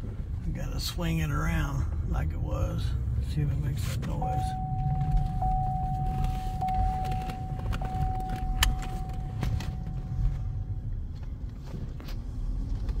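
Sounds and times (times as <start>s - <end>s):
car road and engine rumble: 0.0s - 13.0s
steady high tone: 4.2s - 10.9s.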